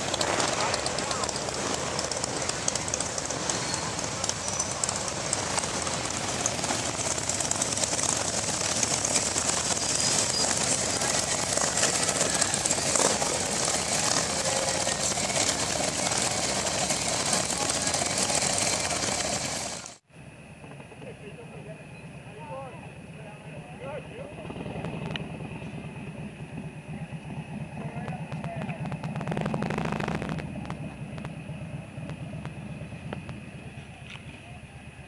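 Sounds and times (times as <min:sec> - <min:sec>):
motorcycles riding past: 0:00.0 - 0:19.6.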